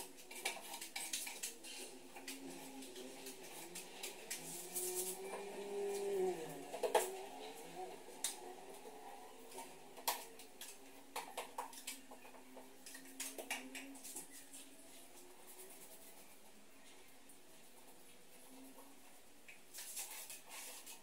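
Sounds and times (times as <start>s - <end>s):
tool scraping plasterboard: 0.0s - 8.5s.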